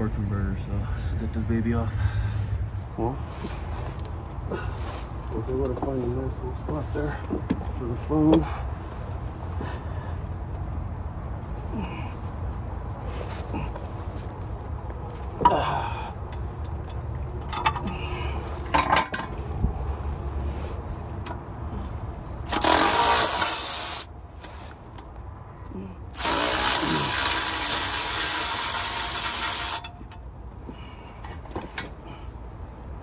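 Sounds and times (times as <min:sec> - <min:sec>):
impact wrench hammering bolts: 0:22.5 - 0:24.1.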